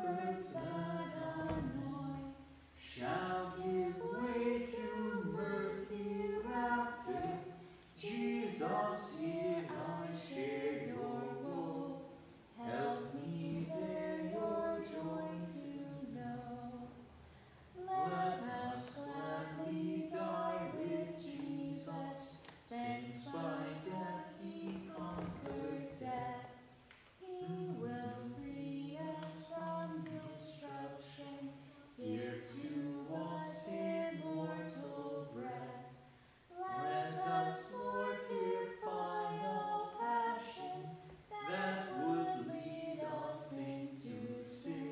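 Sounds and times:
man singing a hymn: 0:02.9 - 0:05.6.

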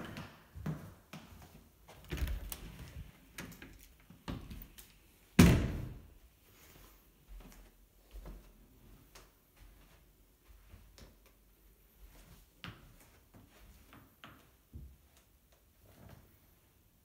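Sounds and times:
door thud: 0:05.4 - 0:06.0.

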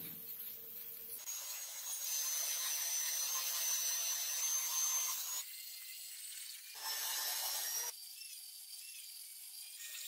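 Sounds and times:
band saw cutting steel: 0:01.2 - 0:07.9.

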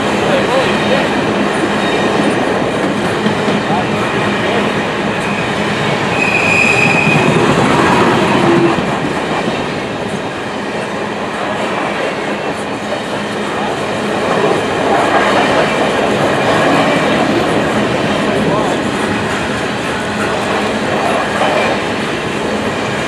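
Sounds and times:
freight train rolling past: 0:00.0 - 0:23.0
high wheel squeal: 0:05.2 - 0:08.8.

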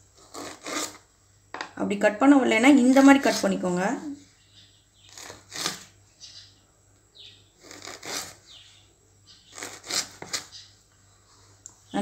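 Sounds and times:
knife cutting on wooden board: 0:00.2 - 0:01.0, 0:05.1 - 0:05.9, 0:07.6 - 0:08.4, 0:09.5 - 0:10.5.

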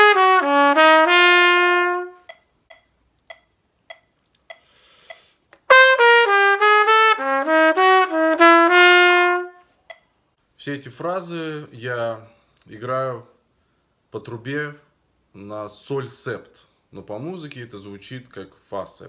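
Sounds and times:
trumpet playing jazz phrase: 0:00.0 - 0:02.3, 0:05.6 - 0:09.7
metronome ticking: 0:02.2 - 0:05.3, 0:09.8 - 0:10.1.

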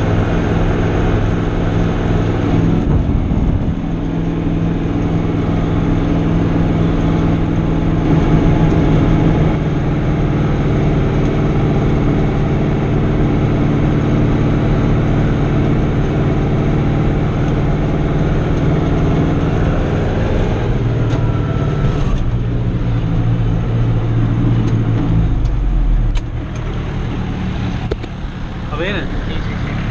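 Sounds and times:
tractor engine running under load: 0:00.0 - 0:29.9
deep low note: 0:02.4 - 0:06.6.

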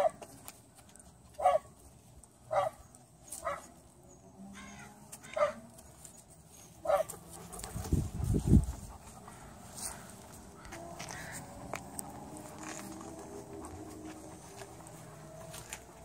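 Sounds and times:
dog barking: 0:01.4 - 0:01.7, 0:02.5 - 0:02.8, 0:03.4 - 0:03.7, 0:05.3 - 0:05.6, 0:06.8 - 0:07.1.

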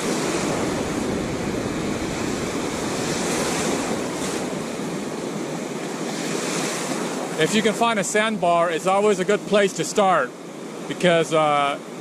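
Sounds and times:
wind buffeting microphone: 0:00.0 - 0:07.4
waves breaking on beach: 0:00.0 - 0:12.0.

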